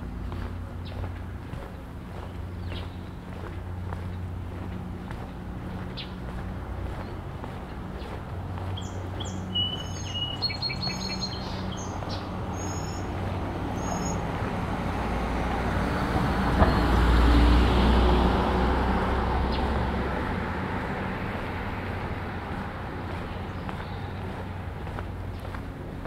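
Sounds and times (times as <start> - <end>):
birds chirping: 0.0 - 14.9, 19.4 - 20.0, 20.8 - 26.0
vehicle passing by: 0.0 - 26.0.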